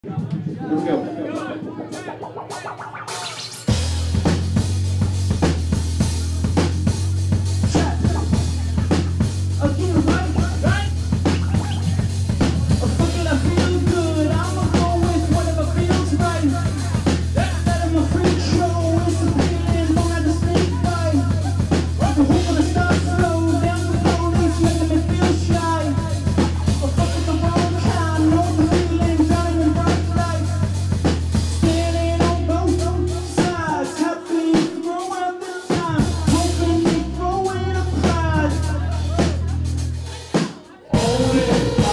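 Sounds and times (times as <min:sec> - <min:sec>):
drum-kit beat: 0:00.0 - 0:41.9
keyboards: 0:00.0 - 0:41.9
low droning bass: 0:01.9 - 0:33.2, 0:41.0 - 0:41.9
man singing into a microphone: 0:09.6 - 0:12.0, 0:12.7 - 0:30.8, 0:31.6 - 0:39.4, 0:40.8 - 0:41.9.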